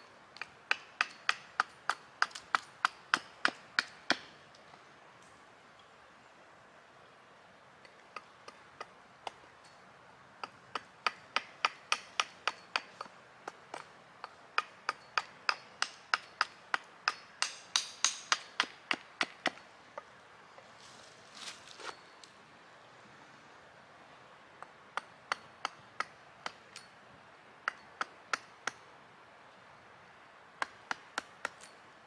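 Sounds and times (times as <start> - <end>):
hatchet chopping wood: 0.4 - 4.4, 10.4 - 20.1, 24.9 - 26.9, 27.6 - 28.8, 30.6 - 31.7
feet rustling dry leaves: 20.6 - 22.4.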